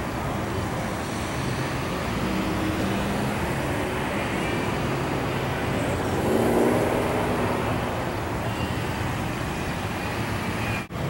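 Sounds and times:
road traffic noise: 0.0 - 11.0
vehicle engine passing close: 1.4 - 8.4.

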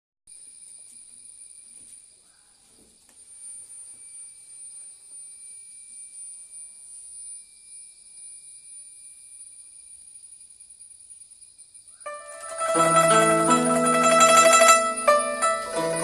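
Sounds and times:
high-pitched insect drone: 3.8 - 16.0.

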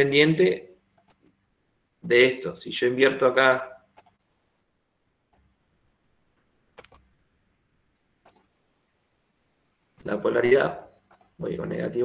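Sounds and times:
faint mouse clicks: 1.0 - 1.4, 3.9 - 4.2, 5.3 - 5.5, 8.2 - 8.5, 11.0 - 11.4.

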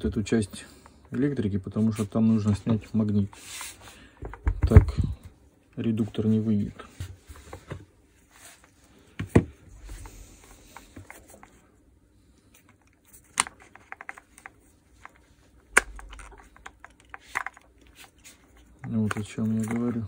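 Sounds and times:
plastic parts clicking and rattling: 12.6 - 20.0.

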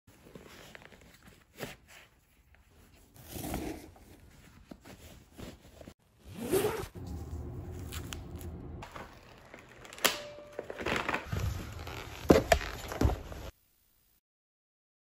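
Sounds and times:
glove rustling: 0.1 - 13.5
footsteps on tile floor: 11.2 - 13.5.

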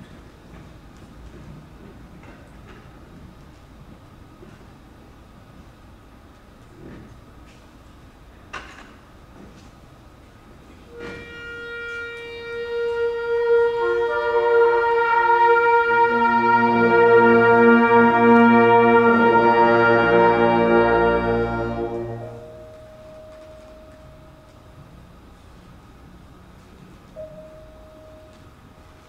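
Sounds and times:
band sustaining a chord: 11.0 - 24.6.

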